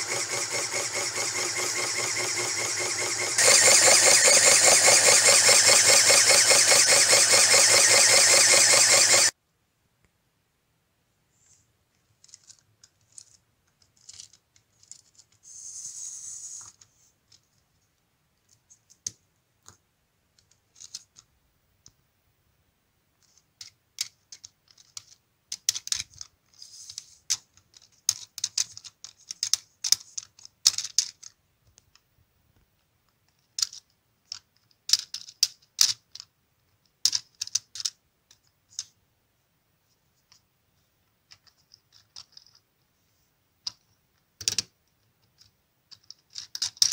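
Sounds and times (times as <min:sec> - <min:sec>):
plastic gears clicking and rattling: 0:00.0 - 0:09.3, 0:12.2 - 0:15.4, 0:20.4 - 0:21.3, 0:23.2 - 0:31.4, 0:33.3 - 0:38.9, 0:41.3 - 0:42.7, 0:44.4 - 0:46.9.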